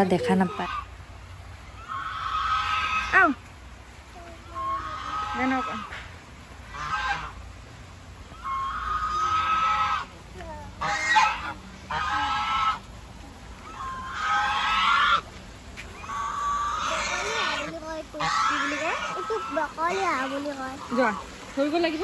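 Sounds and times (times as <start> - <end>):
goose honking: 0.1 - 0.9, 1.7 - 3.4, 4.5 - 6.0, 6.7 - 7.4, 8.3 - 10.1, 10.8 - 12.9, 13.6 - 15.3, 16.0 - 21.2.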